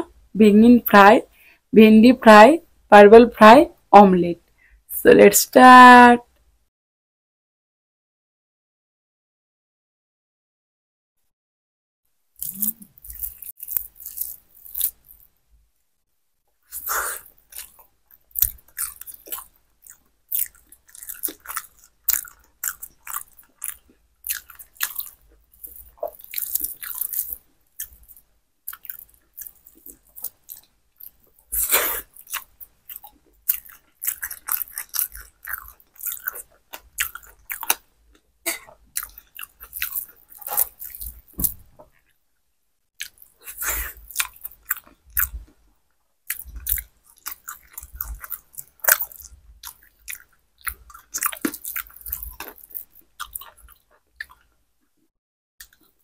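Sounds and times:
person chewing food: 12.4 - 15.3, 16.7 - 42.2, 43.0 - 45.7, 46.3 - 56.0.

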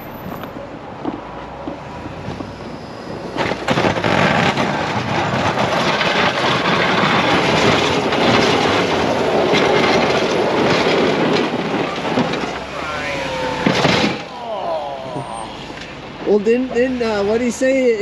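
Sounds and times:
snowplow blade scraping snow: 1.8 - 14.4.

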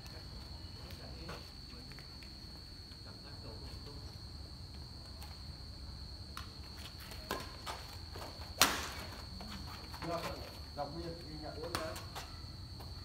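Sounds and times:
footsteps on concrete court: 0.0 - 3.0, 6.3 - 13.0
insects chirring: 0.0 - 13.0.

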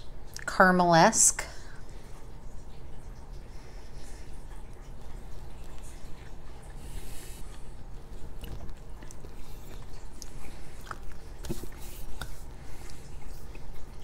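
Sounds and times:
person chewing marshmallow: 3.8 - 14.0.

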